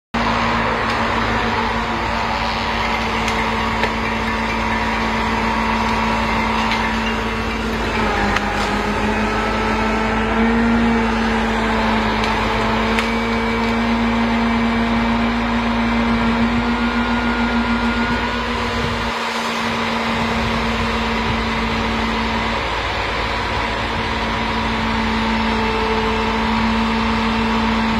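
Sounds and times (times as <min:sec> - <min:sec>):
hydraulic crane hum: 0:00.1 - 0:27.9
truck diesel engine running: 0:00.1 - 0:27.9.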